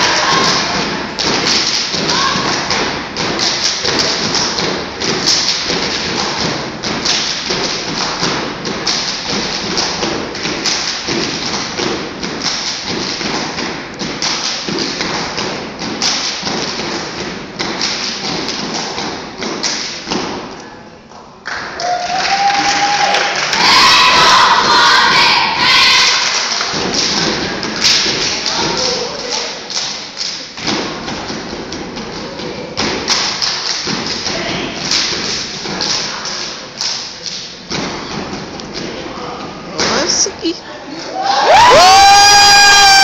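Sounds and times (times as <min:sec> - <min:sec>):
rhythmic foot stomps: 0:00.0 - 0:20.6, 0:23.5 - 0:40.6
voices shouting: 0:23.5 - 0:26.2
hand claps: 0:33.0 - 0:37.5.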